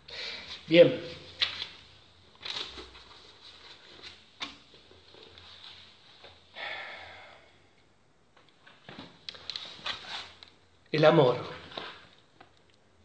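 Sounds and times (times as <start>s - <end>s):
soft rustles: 0.5s - 6.5s, 8.5s - 10.6s.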